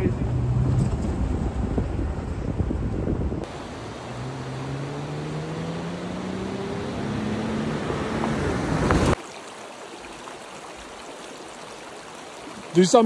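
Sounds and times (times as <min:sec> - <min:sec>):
car engine pulling uphill: 0:00.0 - 0:09.2
shallow creek rushing: 0:00.0 - 0:13.0.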